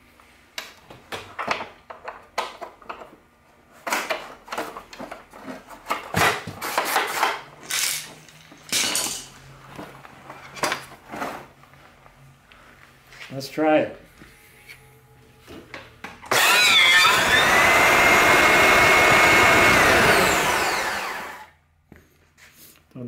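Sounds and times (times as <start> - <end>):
vacuum scraping on concrete: 16.3 - 21.5.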